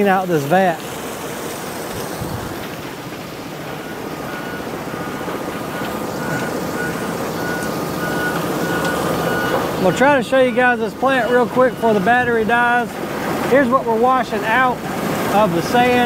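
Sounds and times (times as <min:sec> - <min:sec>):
sand-washing plant rushing: 0:00.0 - 0:16.0
reversing alarm beeping: 0:03.6 - 0:12.9.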